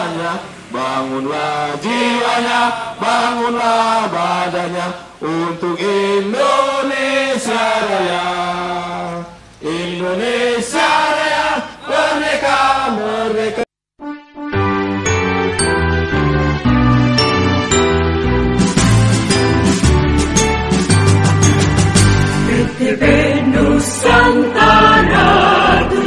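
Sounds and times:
crowd singing in unison: 0:00.0 - 0:13.7, 0:22.4 - 0:26.0.

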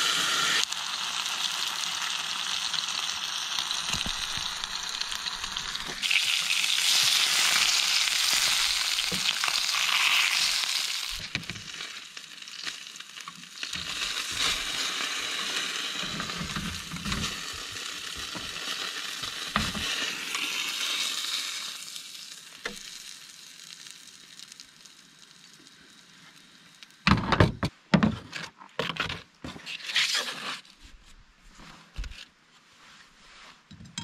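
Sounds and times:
food sizzling in a frying pan: 0:00.0 - 0:27.1.

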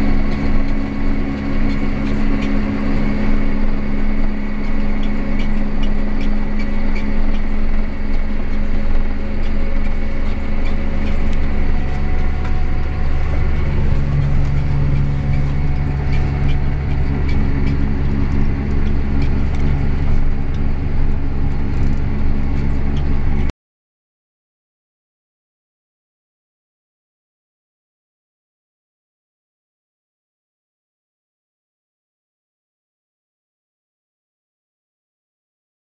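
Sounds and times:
tractor diesel engine droning: 0:00.0 - 0:23.5.

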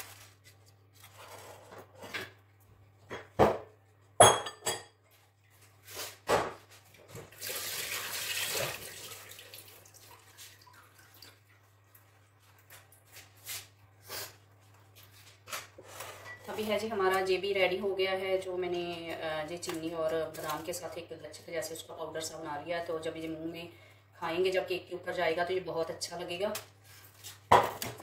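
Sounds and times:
faint steady hum: 0:13.8 - 0:27.2.

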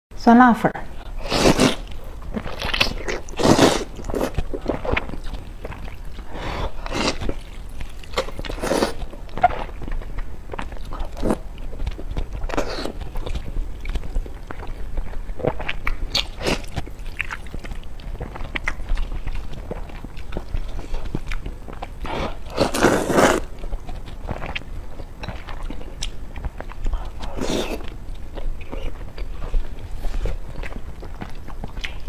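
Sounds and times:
chewing: 0:01.0 - 0:32.0
slurping noodles: 0:01.2 - 0:01.9, 0:02.6 - 0:05.0, 0:08.2 - 0:09.0, 0:22.1 - 0:23.5.

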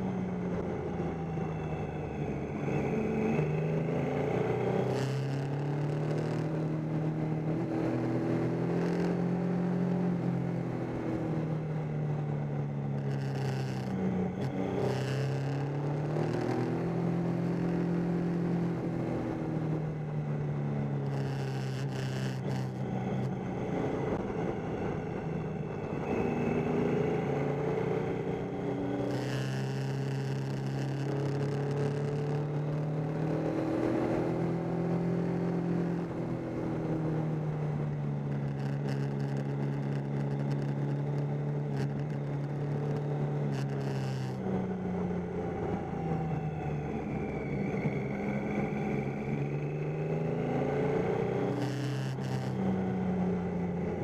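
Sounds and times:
motorcycle engine running: 0:04.2 - 0:49.4.

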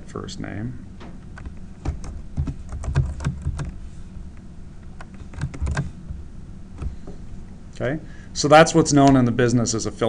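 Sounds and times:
computer keyboard typing: 0:01.4 - 0:03.8, 0:05.0 - 0:05.9.

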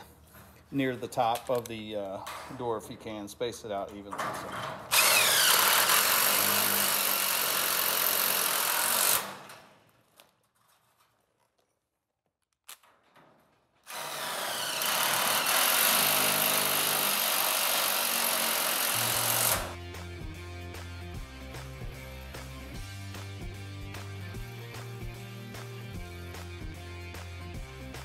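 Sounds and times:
cordless driver running screws: 0:04.9 - 0:09.5, 0:13.9 - 0:19.8.

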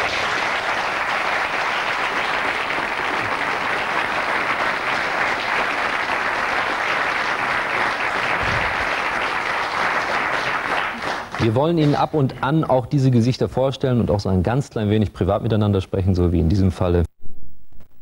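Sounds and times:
audience applauding: 0:00.0 - 0:12.1.

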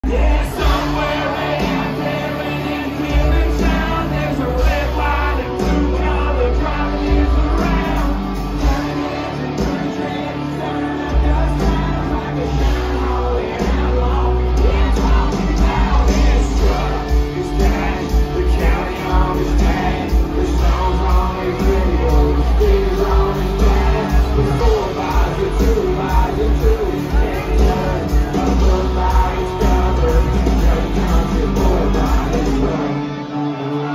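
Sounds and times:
crowd yelling along: 0:00.0 - 0:33.9
live country-rock band: 0:00.0 - 0:33.9
person singing: 0:00.0 - 0:33.9.

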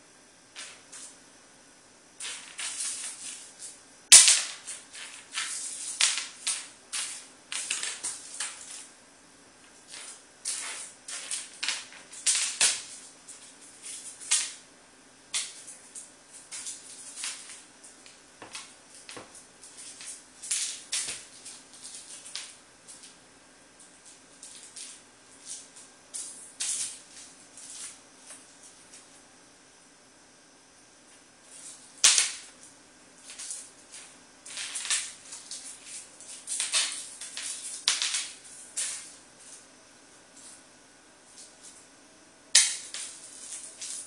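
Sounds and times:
wrapped mint skittering on floor: 0:09.7 - 0:14.6, 0:33.2 - 0:39.6.

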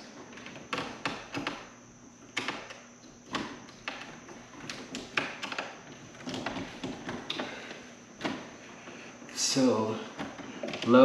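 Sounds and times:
screwdriver clicking on breakers: 0:00.3 - 0:01.7, 0:02.3 - 0:08.4, 0:10.2 - 0:11.0.

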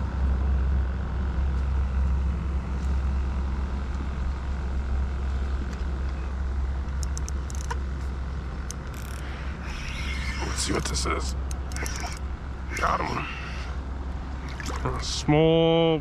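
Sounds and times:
small clicks: 0:06.9 - 0:07.8, 0:08.6 - 0:09.2.

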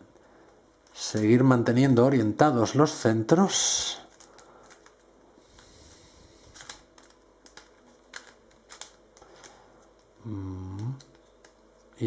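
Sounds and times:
plastic puzzle pieces clicking: 0:06.6 - 0:09.6
short vocal sound: 0:10.2 - 0:11.0.

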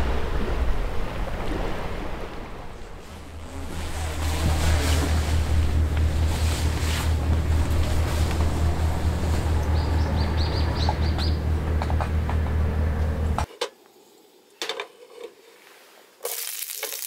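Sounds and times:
boat engine drone: 0:00.0 - 0:13.5
water noise: 0:00.0 - 0:13.5
wind: 0:00.0 - 0:17.0.

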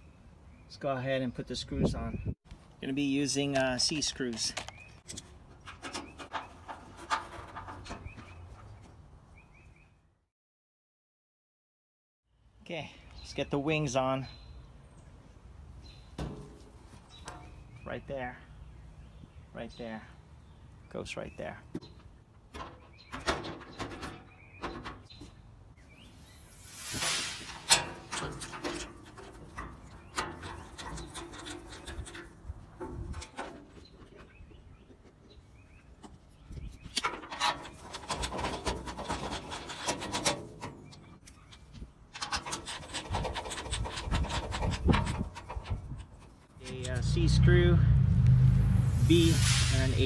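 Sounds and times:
sheet metal scraping: 0:26.4 - 0:33.6, 0:37.0 - 0:41.2, 0:42.2 - 0:47.4
rapid clicking and rasping: 0:41.6 - 0:47.2.

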